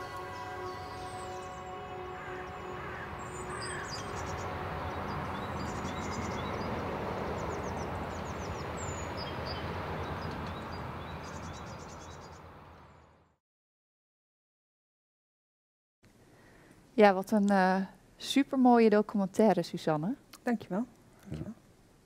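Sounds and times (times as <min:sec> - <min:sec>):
held music notes: 0:00.0 - 0:08.8
birds chirping: 0:00.0 - 0:13.2.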